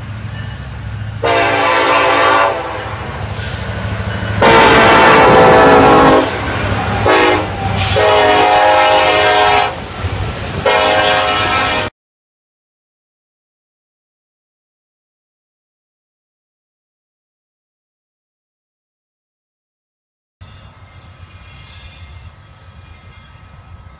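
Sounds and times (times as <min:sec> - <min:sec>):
rumble of passing train: 0:00.0 - 0:11.9, 0:20.4 - 0:23.9
locomotive air horn blasts: 0:01.2 - 0:03.7, 0:04.4 - 0:09.8, 0:10.6 - 0:11.9.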